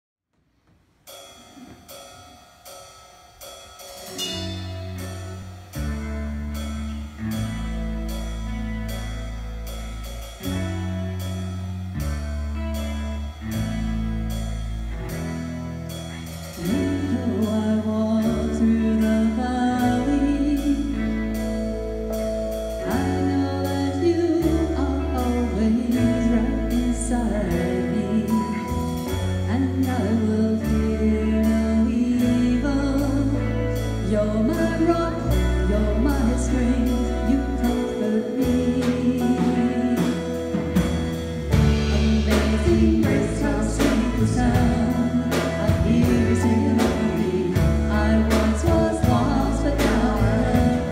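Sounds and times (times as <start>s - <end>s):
bass: 0.4s - 50.9s
drum kit: 0.8s - 50.9s
electric guitar: 4.1s - 50.9s
keyboard: 4.1s - 50.9s
singers: 41.8s - 50.9s.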